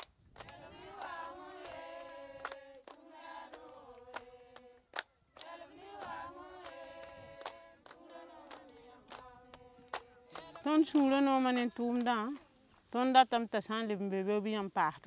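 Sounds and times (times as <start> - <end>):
women singing long held notes: 0.4 - 12.3.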